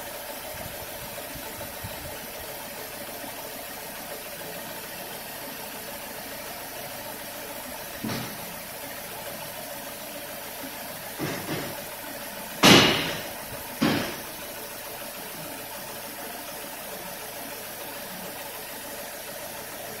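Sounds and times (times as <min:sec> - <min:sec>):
car engine idling: 0:00.0 - 0:20.0
loud sharp bangs: 0:12.6 - 0:14.2.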